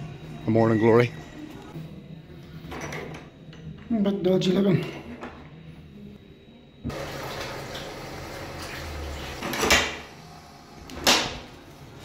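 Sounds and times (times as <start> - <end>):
water running from tap: 6.9 - 9.8.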